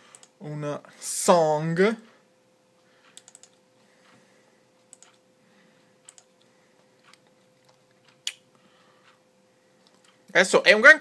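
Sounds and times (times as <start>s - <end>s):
faint steady hum: 0.0s - 11.0s
computer mouse clicks: 0.1s - 0.4s, 3.0s - 3.6s, 4.9s - 5.2s, 6.0s - 8.4s.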